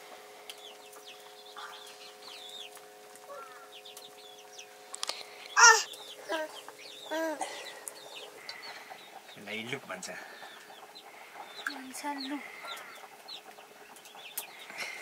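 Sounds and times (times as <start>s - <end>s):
chickens clucking: 0.2s - 15.0s
loud chicken call: 5.6s - 5.9s.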